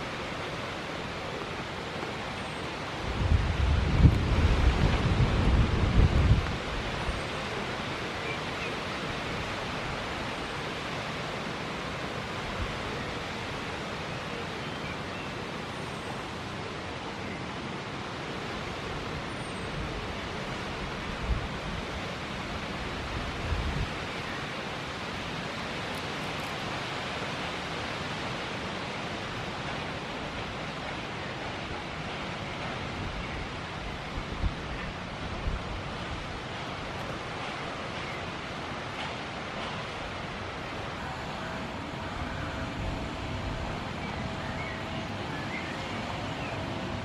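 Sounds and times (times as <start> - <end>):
wind hissing: 35.4 - 47.0.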